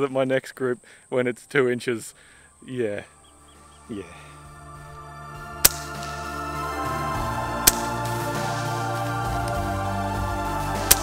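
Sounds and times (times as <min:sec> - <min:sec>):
background music: 0:01.7 - 0:11.0
air rifle shot: 0:05.6 - 0:06.4, 0:07.6 - 0:08.8, 0:10.8 - 0:11.0.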